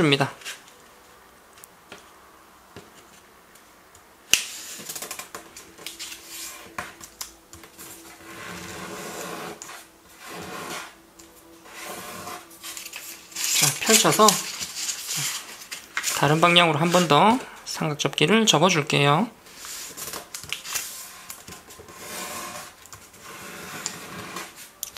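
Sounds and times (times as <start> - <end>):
paper rustling and rubbing: 4.5 - 11.0, 11.6 - 17.4, 19.5 - 24.8.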